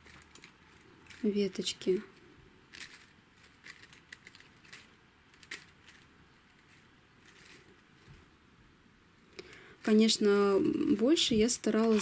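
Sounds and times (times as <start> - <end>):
plastic sequins clicking and rustling: 0.0 - 8.3.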